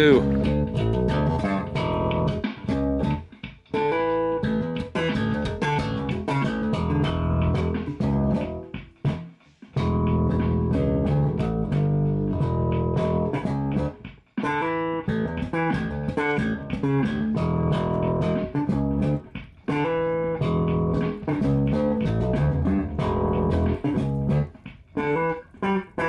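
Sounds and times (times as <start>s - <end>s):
bass line: 0.0s - 3.2s, 3.8s - 9.2s, 9.8s - 14.1s, 14.8s - 24.6s
plucked guitar: 0.0s - 26.0s.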